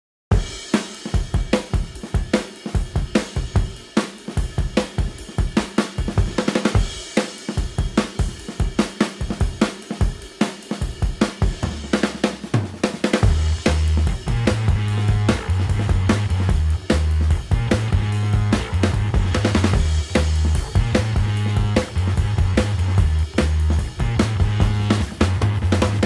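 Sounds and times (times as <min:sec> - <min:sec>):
fast drum-kit beat with cymbals: 0:00.3 - 0:26.0
bass line: 0:13.2 - 0:26.0.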